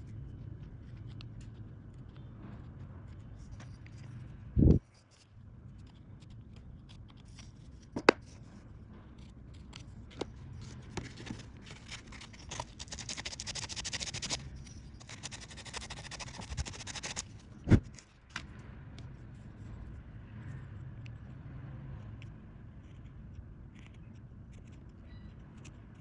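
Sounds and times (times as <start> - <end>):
carving tool scraping wood: 11.3 - 17.4
sandpaper rubbing wood: 12.5 - 14.4, 15.0 - 17.3.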